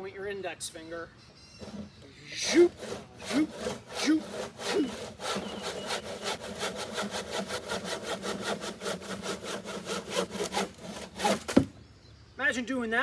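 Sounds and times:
handsaw cutting wood: 0:01.6 - 0:11.7.

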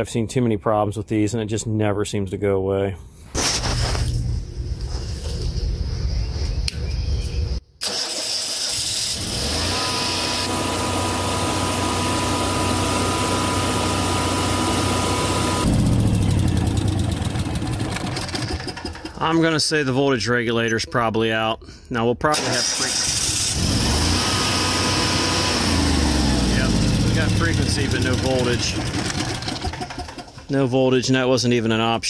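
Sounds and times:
generator engine running: 0:07.8 - 0:19.4, 0:22.4 - 0:30.5.

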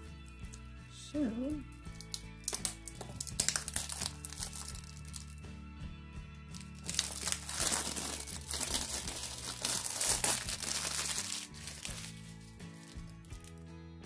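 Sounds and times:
background music with held tones: 0:00.0 - 0:14.0
plastic packaging crinkling: 0:02.0 - 0:05.4, 0:06.6 - 0:13.6.

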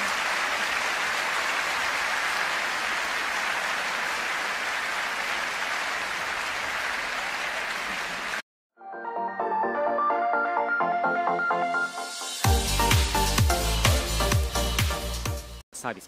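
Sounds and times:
crowd applauding: 0:00.0 - 0:08.4
electronic music: 0:08.8 - 0:15.6.

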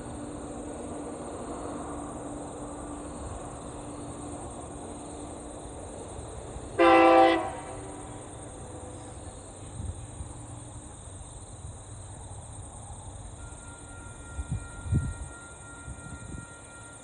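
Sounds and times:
locomotive horn blast: 0:06.8 - 0:08.0.

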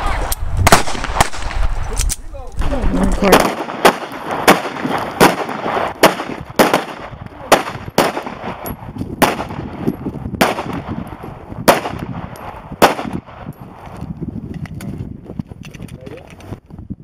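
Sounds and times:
pistol shots: 0:00.6 - 0:01.6, 0:03.2 - 0:13.5.

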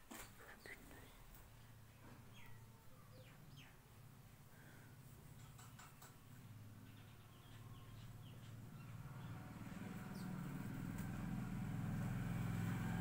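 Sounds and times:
low mechanical hum: 0:00.0 - 0:13.0
faint high chirps: 0:01.9 - 0:03.9.

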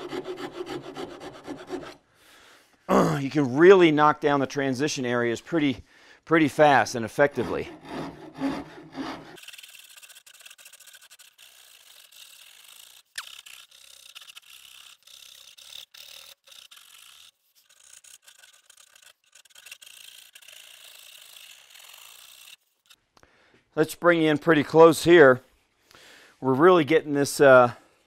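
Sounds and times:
rasp filing wood: 0:00.0 - 0:02.0, 0:06.9 - 0:22.6.

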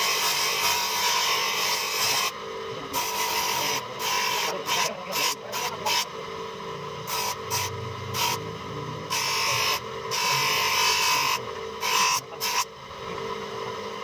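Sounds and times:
bench grinder humming: 0:00.0 - 0:14.0
steel blade grinding on wheel: 0:03.0 - 0:06.1, 0:07.0 - 0:12.7.

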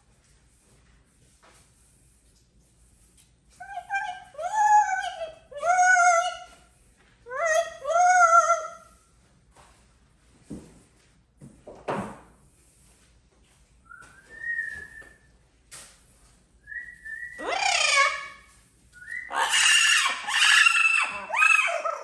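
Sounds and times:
parrot wavering calls: 0:07.3 - 0:08.8, 0:17.3 - 0:22.0
parrot whistling: 0:14.2 - 0:15.2, 0:16.7 - 0:18.4, 0:19.0 - 0:22.0.

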